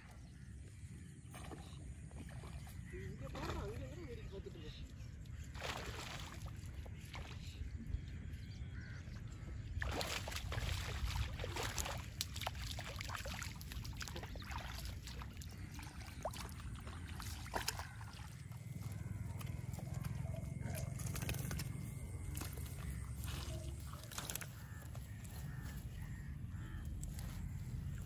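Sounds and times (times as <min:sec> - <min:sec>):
fish splashing in water: 0:05.5 - 0:06.6, 0:09.8 - 0:26.8.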